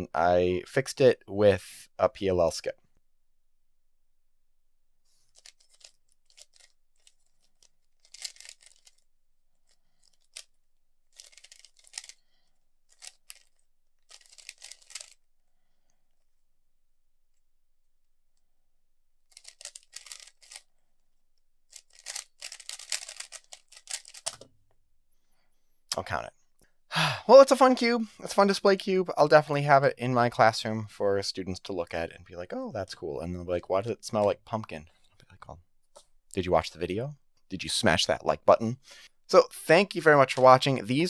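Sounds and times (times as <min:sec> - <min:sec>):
speed cube clicking and scraping: 0:05.2 - 0:15.3, 0:19.3 - 0:20.7, 0:21.7 - 0:24.5.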